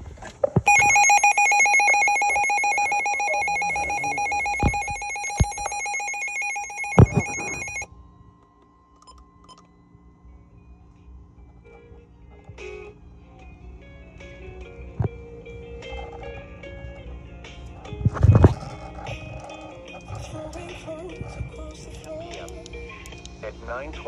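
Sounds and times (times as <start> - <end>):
weather radio trilling alarm: 0.7 - 7.9
faint steady tone: 0.7 - 8.2.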